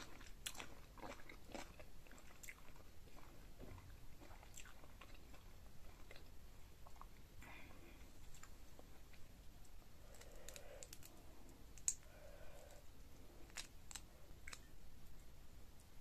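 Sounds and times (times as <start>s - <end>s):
shrimp shell cracking: 13.5s - 14.7s.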